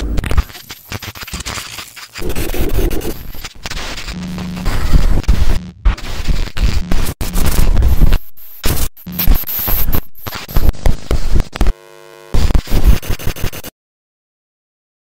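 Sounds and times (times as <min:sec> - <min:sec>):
harsh distorted static: 0:00.0 - 0:13.7
short buzzing tone: 0:11.7 - 0:12.4.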